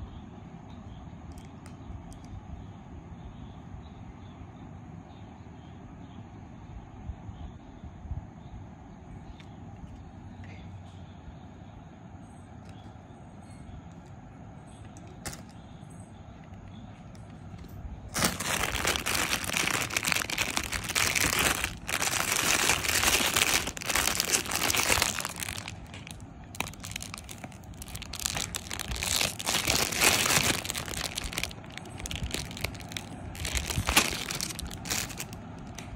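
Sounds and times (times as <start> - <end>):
plastic bags crinkling: 17.6 - 35.9.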